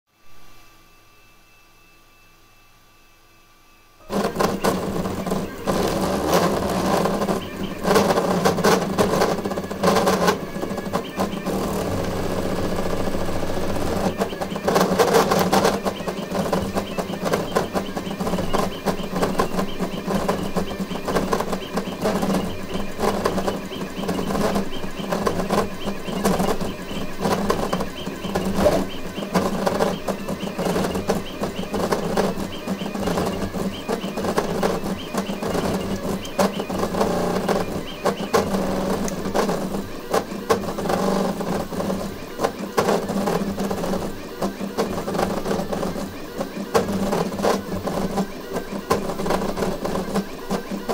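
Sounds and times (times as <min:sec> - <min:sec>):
steady hum: 0:00.1 - 0:50.9
stepper motors buzzing: 0:04.0 - 0:50.9.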